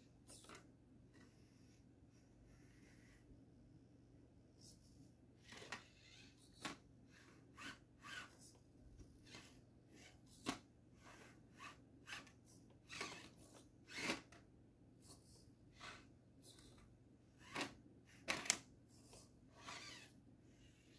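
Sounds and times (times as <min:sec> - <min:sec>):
toy car clicking and scraping on rock: 0:12.9 - 0:14.3.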